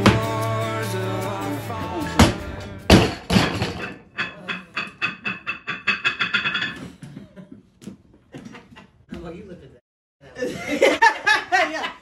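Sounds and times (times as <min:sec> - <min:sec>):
barbell dropped and bouncing: 0:02.2 - 0:06.8.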